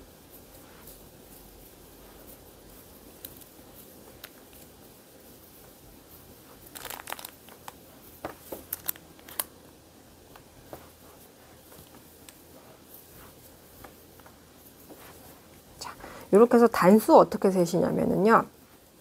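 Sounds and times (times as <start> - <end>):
yarn and crochet hook rustling: 0.0 - 9.6.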